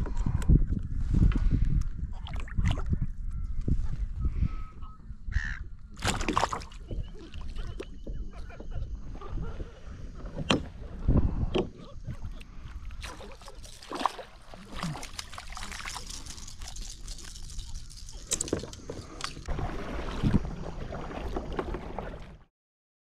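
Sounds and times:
wind rumble on microphone: 0.0 - 13.1, 16.0 - 22.4
water splashing and sloshing: 2.1 - 3.1, 5.9 - 22.5.

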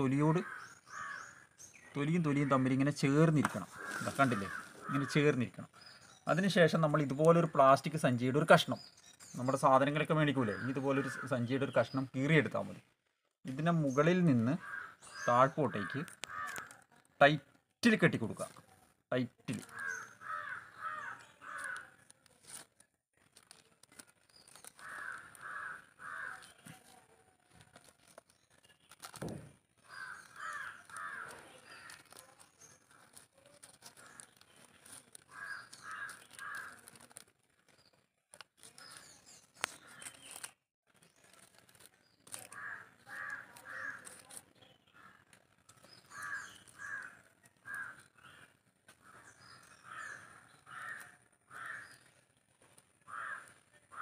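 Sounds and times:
crows cawing: 0.2 - 1.6, 3.4 - 5.4, 10.5 - 11.4, 14.4 - 16.8, 19.5 - 22.0, 24.7 - 26.7, 29.8 - 32.1, 35.2 - 37.0, 42.4 - 44.3, 44.9 - 45.3, 46.0 - 52.1, 53.0 - 54.0
plastic strip crinkling: 21.4 - 44.6.

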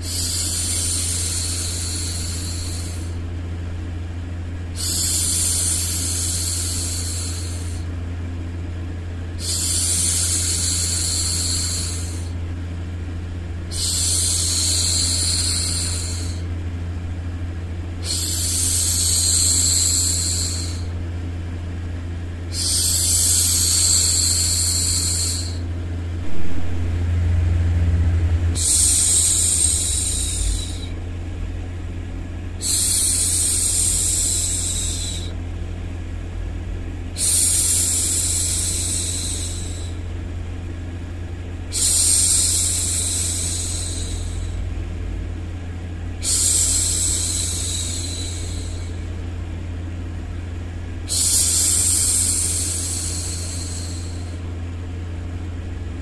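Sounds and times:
steady low hum: 0.0 - 56.0
woman shushing: 28.6 - 31.0, 32.6 - 35.4, 37.2 - 40.0, 41.7 - 44.6, 46.2 - 49.2, 51.1 - 54.5.

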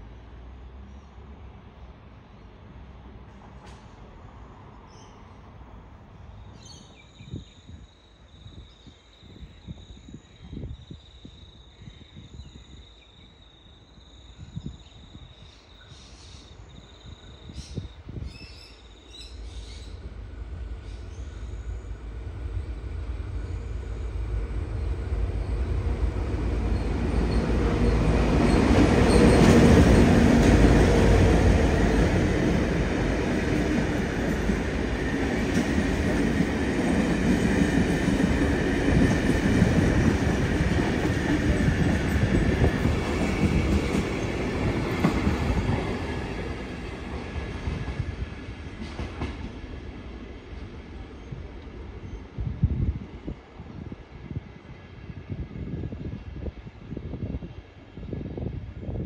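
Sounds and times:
diesel locomotive engines: 17.5 - 59.0
train carriages rolling by: 19.1 - 52.4.

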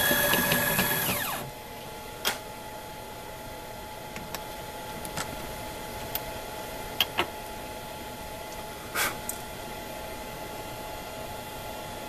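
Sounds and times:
machine hum: 0.0 - 2.1.

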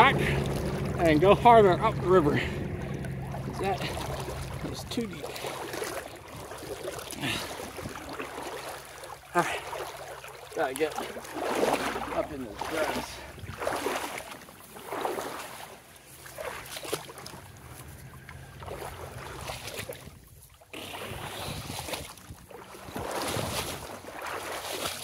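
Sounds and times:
river rushing: 0.0 - 14.2
swishing strides through water: 0.0 - 25.0.

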